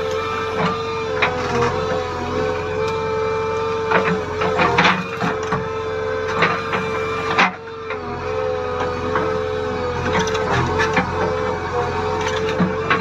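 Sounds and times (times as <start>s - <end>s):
backhoe engine and hydraulics whining: 0.0s - 13.0s.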